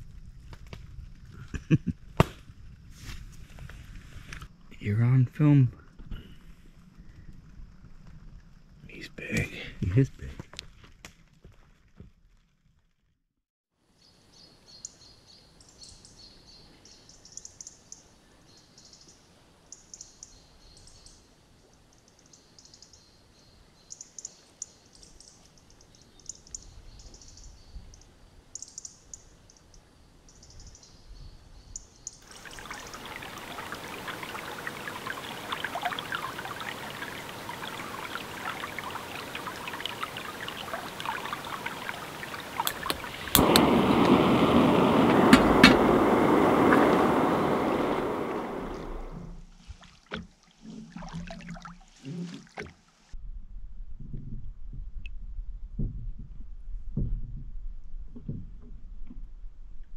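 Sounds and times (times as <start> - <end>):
small birds chirping: 22.1 - 49.1
water rushing: 32.2 - 49.4.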